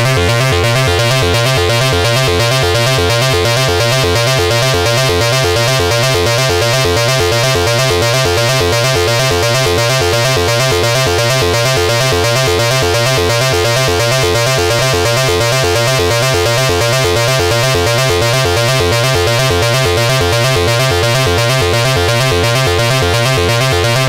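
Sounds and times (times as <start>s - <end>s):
synthesizer bass sequence: 0.0s - 24.0s.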